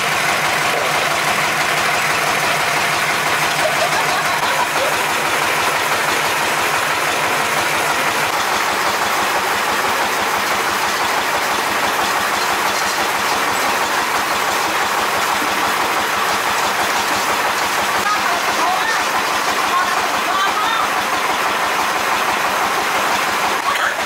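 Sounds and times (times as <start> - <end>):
diesel engine running: 0.0 - 24.0.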